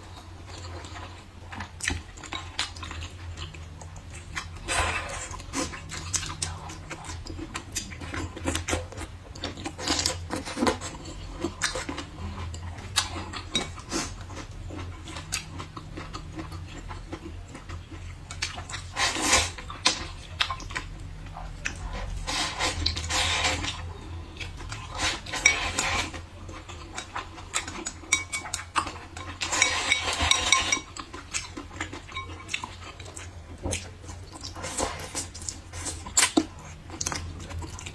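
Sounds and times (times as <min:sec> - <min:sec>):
noodles being slurped: 0:21.8 - 0:23.8.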